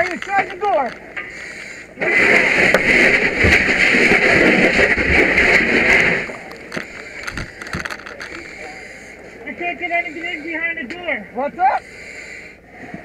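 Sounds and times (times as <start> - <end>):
water splashing: 0.0 - 8.6.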